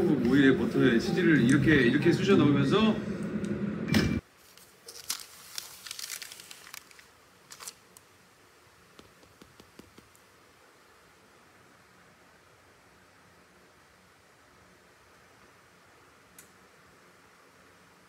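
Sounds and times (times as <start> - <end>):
voice over music: 0.0 - 3.2
paper crinkling and rustling: 4.4 - 8.0.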